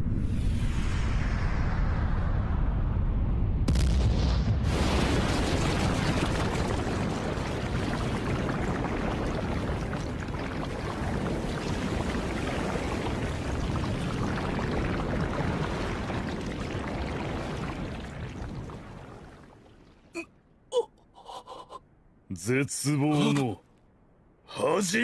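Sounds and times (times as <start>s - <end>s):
liquid rushing and pouring: 4.7s - 20.1s.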